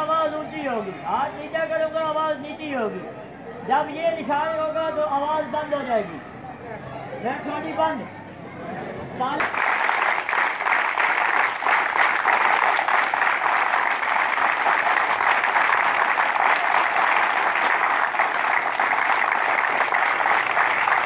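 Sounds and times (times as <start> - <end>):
crowd clapping: 9.4 - 21.0.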